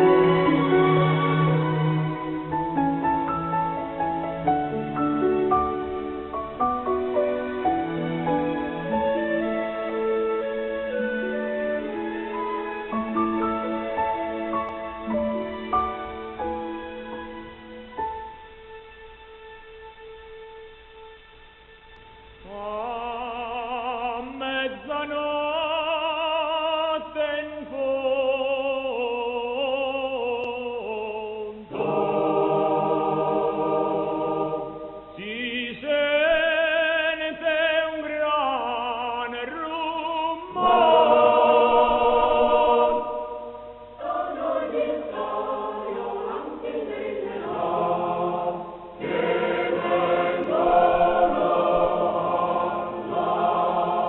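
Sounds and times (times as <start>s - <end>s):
choir singing: 0.0s - 17.4s, 28.6s - 36.4s, 40.2s - 54.0s.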